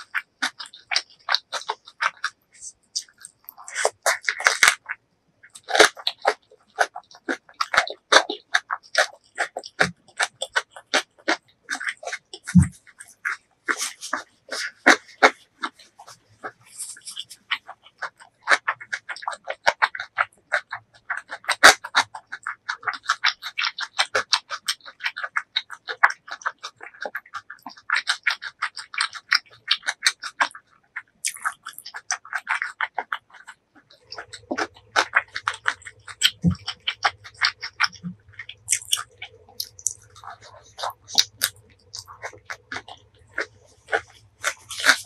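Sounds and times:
chewing with mouth clicks: 0.0 - 45.0
low steady hum: 33.8 - 45.0.

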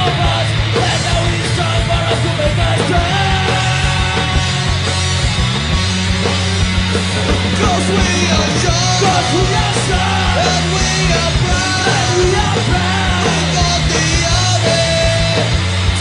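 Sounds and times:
punk rock band playing: 0.0 - 16.0
shouted vocals: 7.6 - 15.5.

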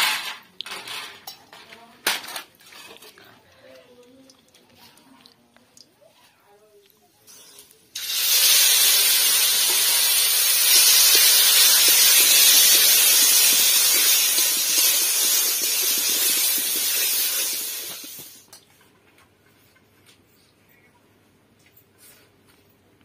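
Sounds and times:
metal spatula stirring: 2.5 - 3.4
paste sizzling in hot oil: 7.3 - 18.4.

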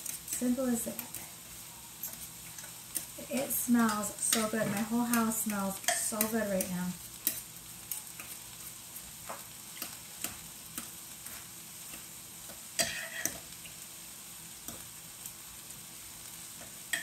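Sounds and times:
vegetables sizzling in a pan: 0.0 - 17.0
forks clinking and scraping a pot: 12.8 - 13.4.

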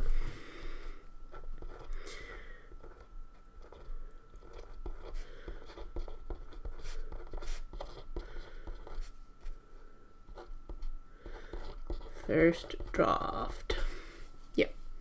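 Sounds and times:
pen scratching on paper: 1.3 - 1.9, 2.8 - 9.1, 10.3 - 13.8.

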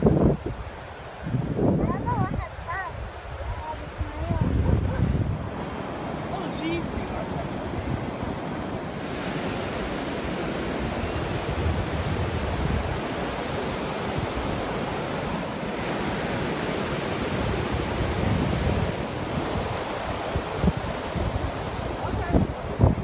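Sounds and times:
surf washing up a beach: 0.0 - 23.0
wind gusting on microphone: 0.0 - 23.0.

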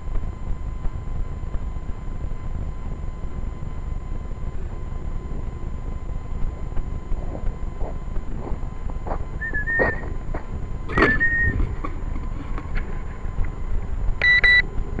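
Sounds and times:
rumbling wind: 0.0 - 15.0
short whistle-like notes: 9.4 - 10.1, 10.9 - 11.6
short electronic beep: 14.2 - 14.7.

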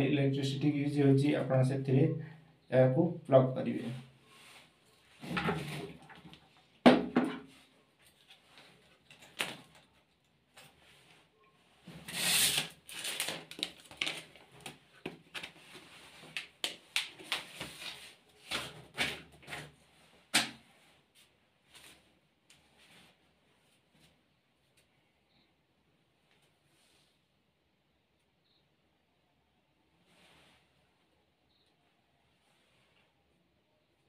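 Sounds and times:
packaging rustling: 12.0 - 19.1.

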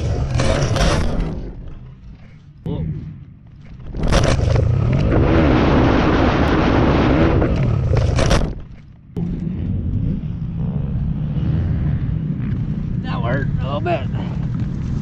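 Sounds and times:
pit bike engine revving: 0.0 - 1.6, 9.2 - 15.0.

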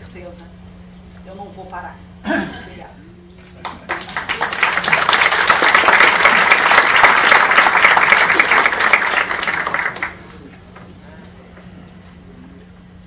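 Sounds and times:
audience applauding: 3.6 - 10.9.

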